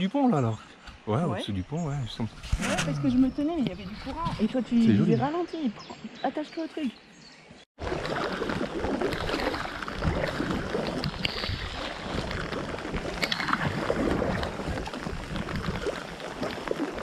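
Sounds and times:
wind on microphone: 2.2s - 5.0s, 7.8s - 17.0s
paddles splashing in water: 7.8s - 17.0s
rain spattering on water: 7.8s - 17.0s.

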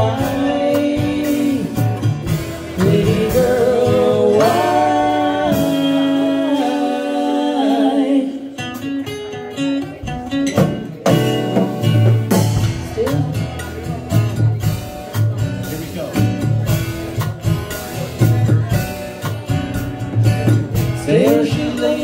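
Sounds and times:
live band playing instrumental: 0.0s - 22.0s
picked guitar notes: 0.0s - 22.0s.

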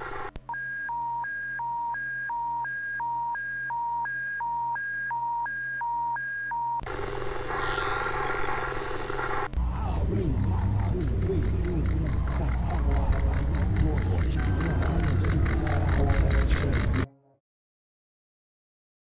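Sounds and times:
broadcast static hiss: 0.0s - 0.3s, 6.9s - 9.7s
low hum: 0.0s - 0.3s, 6.9s - 17.1s
two-tone emergency alert tone: 0.0s - 9.5s
faint sweeping whistles: 6.9s - 9.5s.

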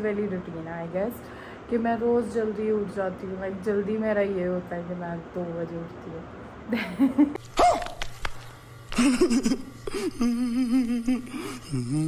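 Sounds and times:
woman's trembling wavering voice: 9.9s - 12.0s.

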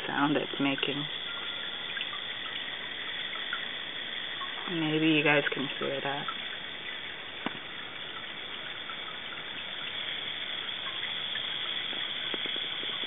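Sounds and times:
wire fizzing in acid: 0.0s - 13.0s
faint clicks: 10.8s - 13.0s.

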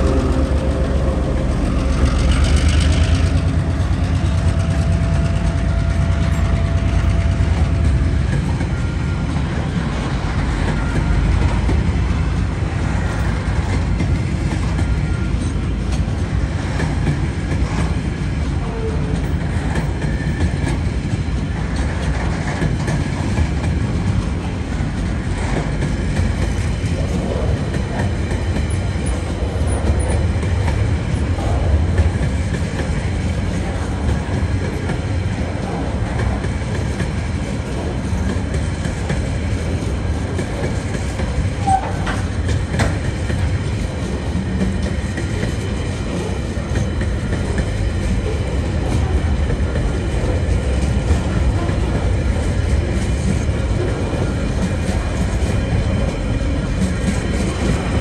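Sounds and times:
train wheels rumbling on rails: 0.0s - 58.0s
wheels clicking over track: 10.6s - 58.0s.

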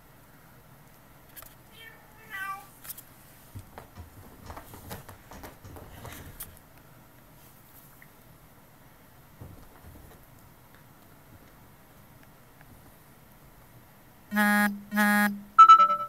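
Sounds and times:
kitten scratching fabric chair: 2.4s - 6.6s.

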